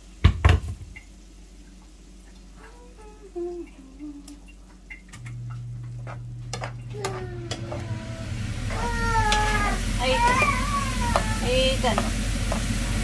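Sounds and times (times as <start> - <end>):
low steady hum: 0.0 - 13.0
soup simmering in a pan: 7.0 - 13.0
spoon scraping a pan: 9.3 - 12.7.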